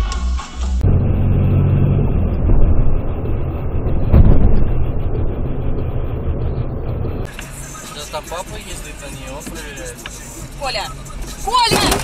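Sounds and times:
car engine and tyres rumbling: 0.0 - 12.0
loud thump: 2.0 - 7.3.

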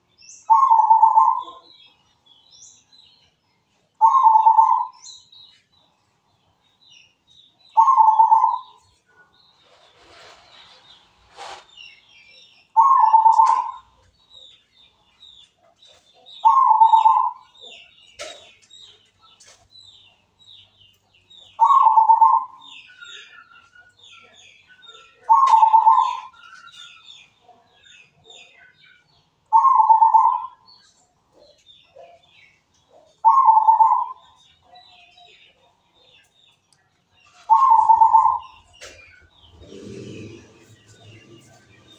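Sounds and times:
small birds chirping: 0.0 - 41.9
dove cooing: 0.5 - 1.8, 4.0 - 5.0, 7.8 - 8.8, 12.8 - 13.9, 16.4 - 17.5, 21.6 - 22.7, 25.2 - 26.4, 29.5 - 30.6, 33.2 - 34.3, 37.5 - 38.6.

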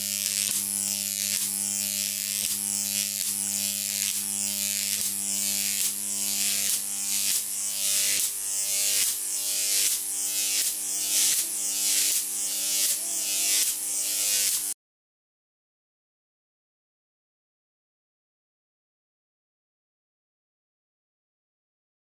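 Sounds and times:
electric arc hissing: 0.0 - 14.8.

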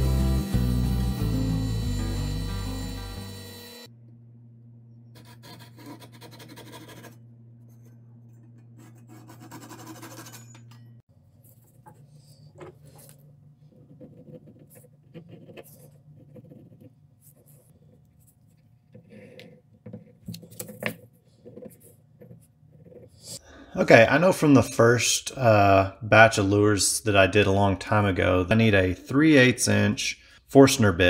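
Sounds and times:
low hum: 0.0 - 5.4
pen scratching on paper: 5.2 - 7.2, 8.8 - 10.4, 12.8 - 20.1.

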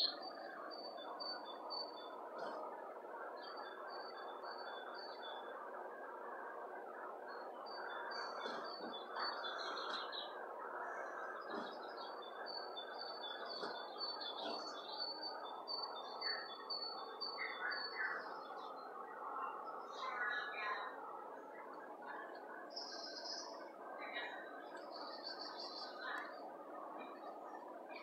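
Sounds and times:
birds chirping through speakers: 0.0 - 28.0
steady background hiss: 0.0 - 28.0.

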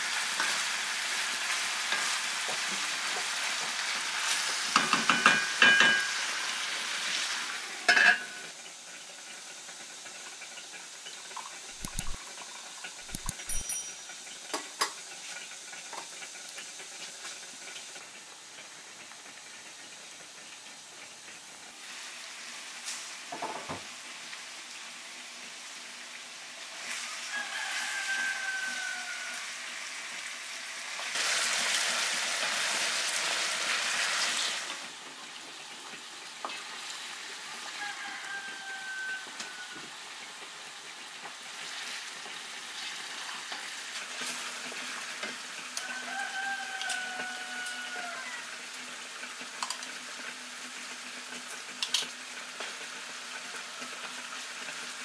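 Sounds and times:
chicken sizzling in a pot: 0.0 - 55.0
stirring: 11.7 - 12.2, 13.0 - 13.9
sharp clinks: 13.1 - 14.2.

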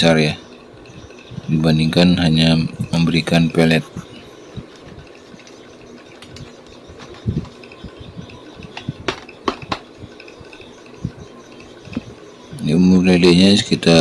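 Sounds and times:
clicks: 4.6 - 12.2.

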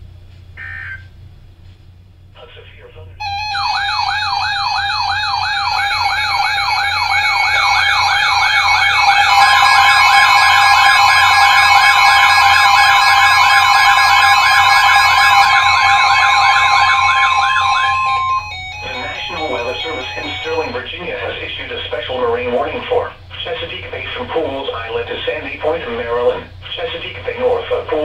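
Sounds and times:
siren-like warbling alarm: 3.2 - 21.0
steady beeping tones: 3.2 - 21.6
steady warning tone: 3.2 - 28.0.

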